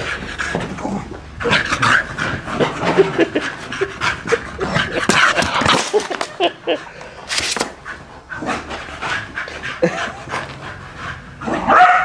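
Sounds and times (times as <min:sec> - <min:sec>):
dog panting: 0:07.8 - 0:11.4.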